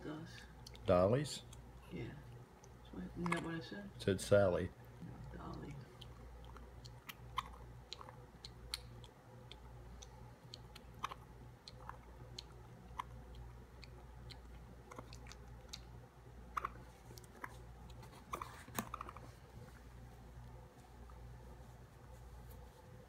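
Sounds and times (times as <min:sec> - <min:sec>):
baby raccoon suckling: 0:04.8 - 0:23.0.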